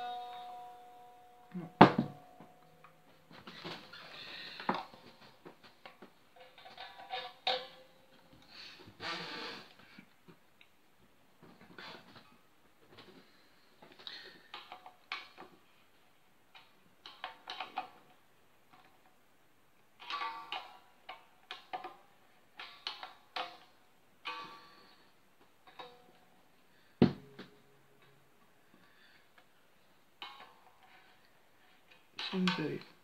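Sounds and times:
guitar strings ringing: 0.0s - 5.2s, 6.4s - 8.2s, 24.2s - 25.0s, 25.6s - 29.2s.

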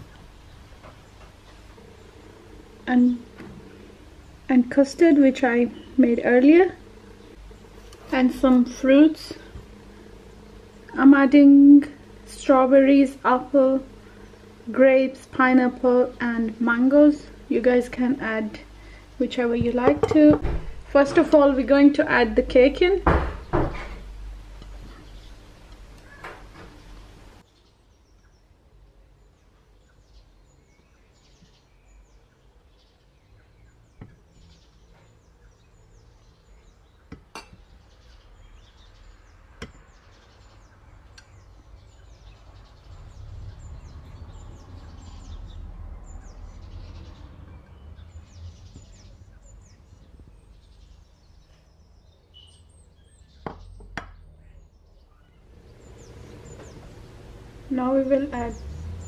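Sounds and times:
birds chirping: 0.0s - 59.0s
low steady hum: 0.0s - 59.0s
dishes knocking: 19.6s - 20.7s, 37.1s - 37.6s.

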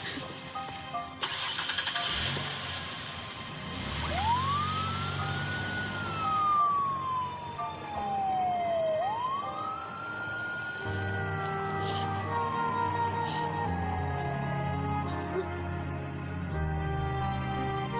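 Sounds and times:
ambulance siren wailing: 3.8s - 17.9s.

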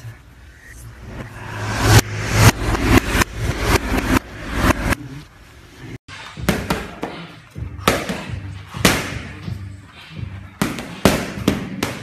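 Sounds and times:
punches slapping focus mitts: 6.4s - 9.4s, 10.5s - 12.0s.

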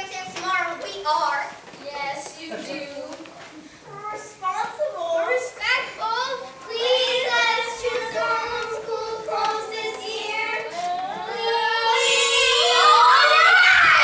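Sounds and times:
girl singing: 3.9s - 14.0s.

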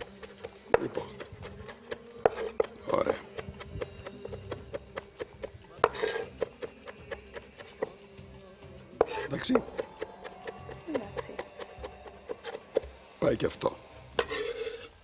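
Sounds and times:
knife chopping on wooden board: 0.0s - 8.0s, 9.0s - 13.0s
fork scraping glass bowl: 1.2s - 3.4s, 5.8s - 6.7s, 9.0s - 10.8s, 14.2s - 15.0s.

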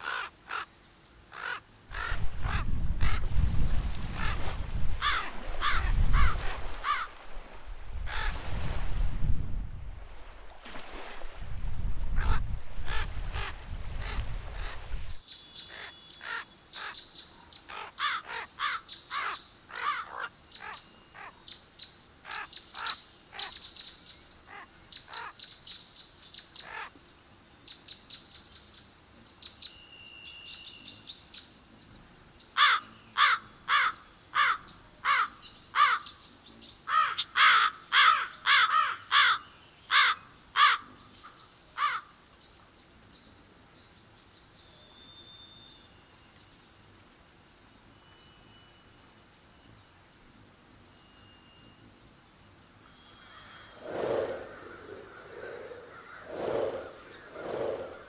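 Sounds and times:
crows cawing: 0.0s - 0.7s, 1.3s - 2.6s, 5.0s - 7.1s, 17.7s - 20.3s, 32.6s - 36.1s, 36.9s - 40.9s, 41.8s - 42.1s.

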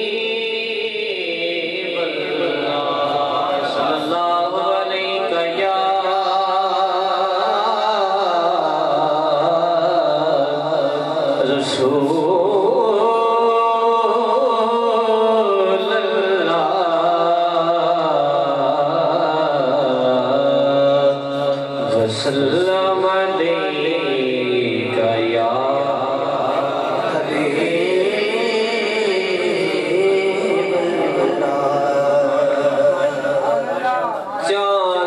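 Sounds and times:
man reciting melodically into microphone: 0.0s - 35.0s.

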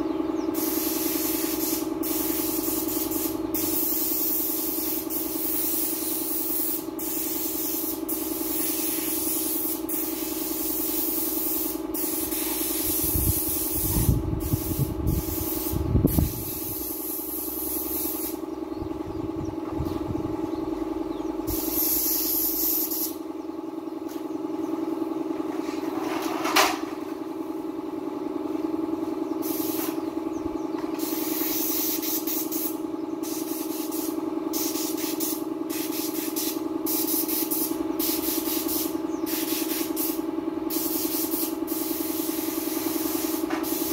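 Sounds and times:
steady motor hum: 0.0s - 43.9s
paint spray gun hissing: 0.5s - 18.4s, 21.5s - 23.2s, 29.4s - 30.1s, 31.0s - 43.9s.

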